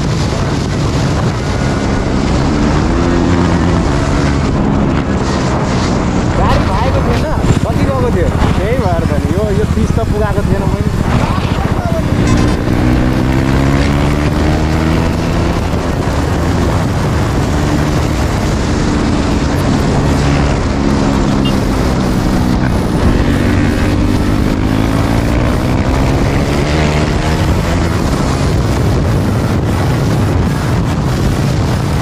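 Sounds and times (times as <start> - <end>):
heavy rush of noise: 0.0 - 32.0
motorcycle engine running hard: 0.0 - 32.0.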